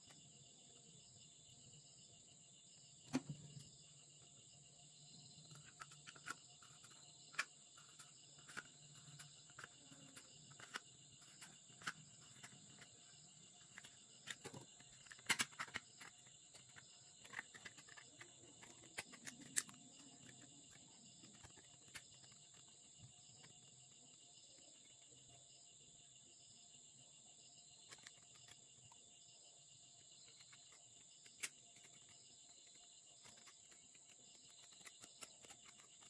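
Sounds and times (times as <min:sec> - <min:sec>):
crickets chirring: 0:00.0 - 0:36.0
scissors cutting plastic bottle: 0:13.8 - 0:22.7, 0:33.2 - 0:36.0.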